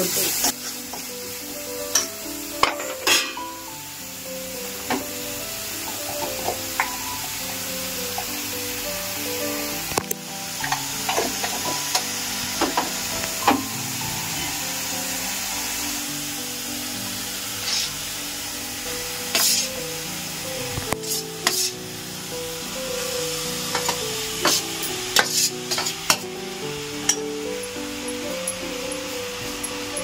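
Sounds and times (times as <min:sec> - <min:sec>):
onion sizzling in hot oil: 0:00.0 - 0:30.0
simple background melody: 0:00.0 - 0:30.0.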